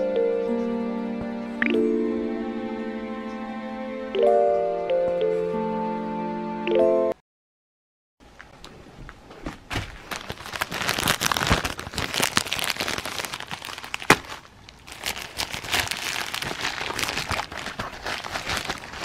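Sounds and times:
plastic package crinkling: 9.6 - 19.0.

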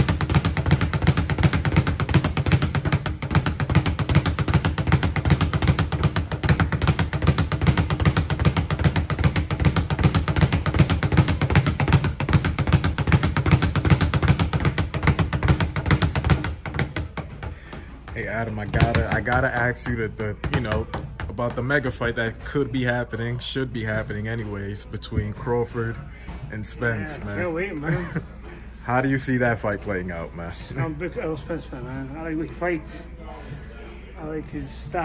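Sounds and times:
speed bag being punched: 0.0 - 21.9.

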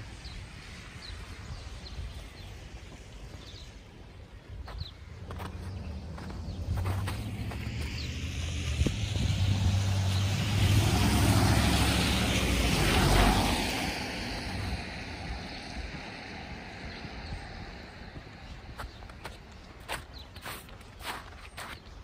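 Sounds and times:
vehicle driving past: 5.2 - 17.2.

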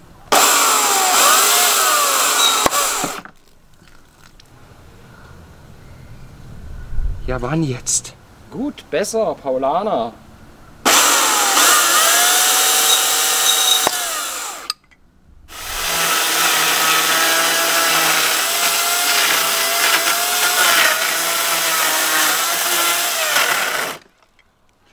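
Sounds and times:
electric chainsaw cutting wood: 0.3 - 3.3, 10.9 - 14.7, 15.5 - 24.1.

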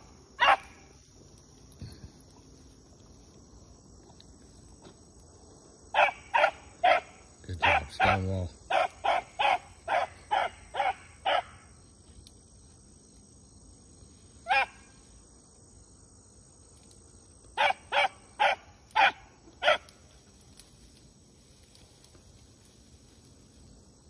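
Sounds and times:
hound barking: 0.4 - 0.9, 5.9 - 11.7, 14.4 - 14.9, 17.6 - 20.0.

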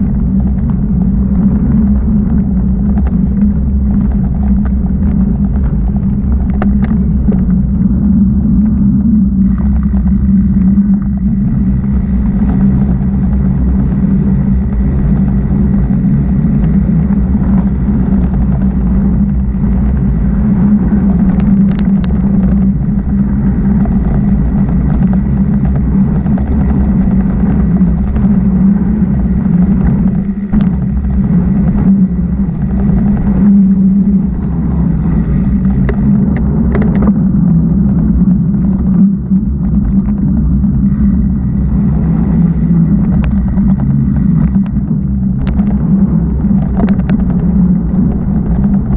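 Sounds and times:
rumble of wind and tyres on dirt: 0.0 - 48.9.

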